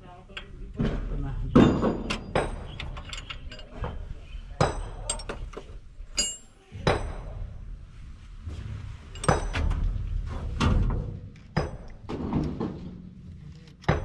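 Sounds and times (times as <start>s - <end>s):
metal tools knocking on engine: 1.6s - 4.0s, 4.6s - 6.5s.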